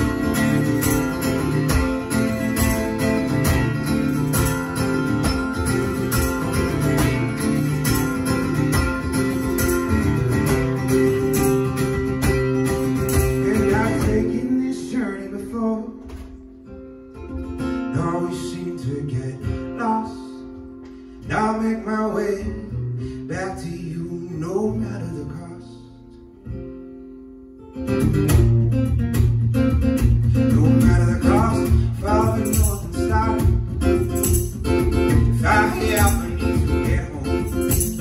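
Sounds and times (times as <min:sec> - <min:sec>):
acoustic guitar strumming: 0:00.0 - 0:38.0.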